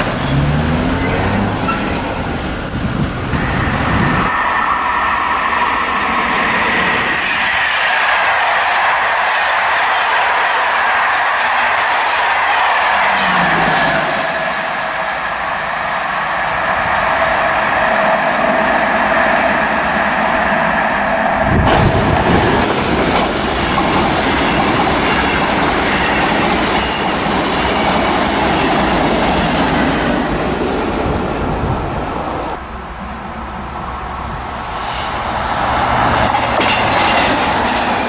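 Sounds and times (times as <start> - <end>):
train rumbling past: 0.0 - 38.0
train wheels whining on rails: 0.0 - 38.0.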